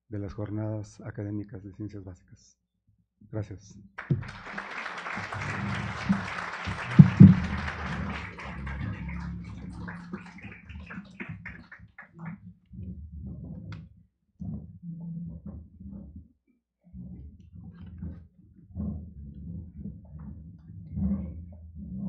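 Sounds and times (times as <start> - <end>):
audience applauding: 4.0 - 12.3.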